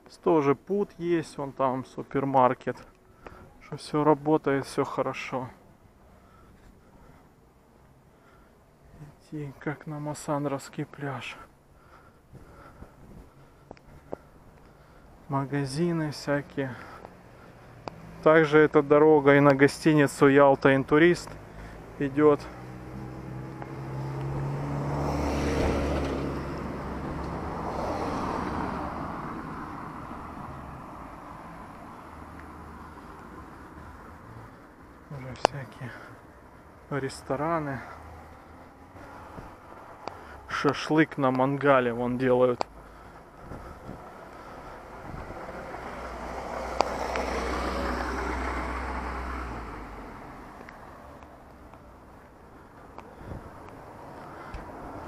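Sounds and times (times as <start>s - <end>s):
vehicle driving past: 16.4s - 18.9s, 21.2s - 34.8s, 42.9s - 52.2s.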